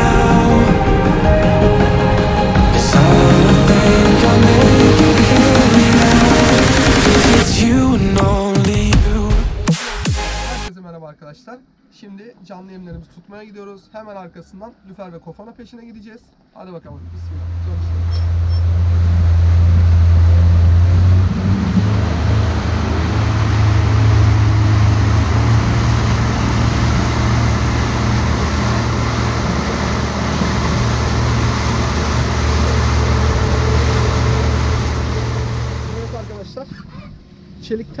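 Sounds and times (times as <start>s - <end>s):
outboard motor running: 0.0s - 7.5s, 17.0s - 37.0s.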